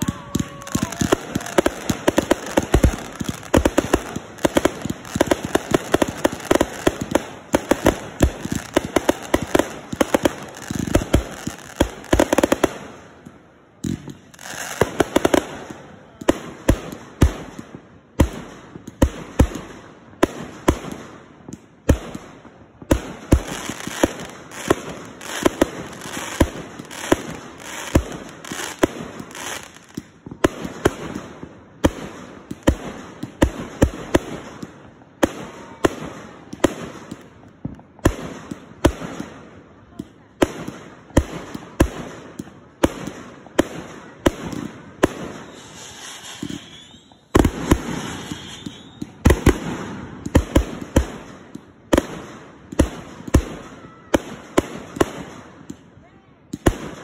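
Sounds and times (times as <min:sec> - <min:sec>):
firework shells bursting: 0:00.0 - 0:14.2
firework crackling: 0:00.0 - 0:55.8.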